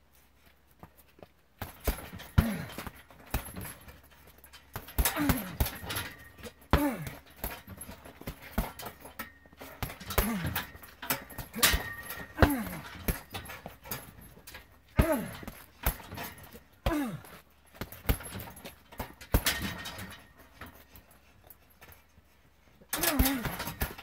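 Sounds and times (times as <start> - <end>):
kicks thudding on punching bag: 1.6 - 20.8, 23.0 - 24.0
person grunting: 2.4 - 2.8, 5.0 - 5.7, 6.7 - 7.2, 10.1 - 10.7, 11.5 - 13.0, 15.0 - 15.6, 16.8 - 17.4, 23.0 - 23.6.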